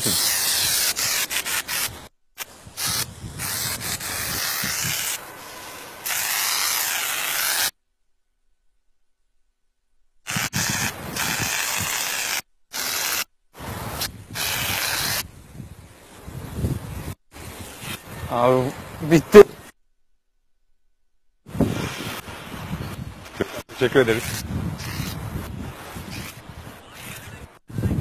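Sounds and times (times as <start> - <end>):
spray paint can hissing: 0.0 - 7.8, 10.3 - 15.3, 24.2 - 25.3.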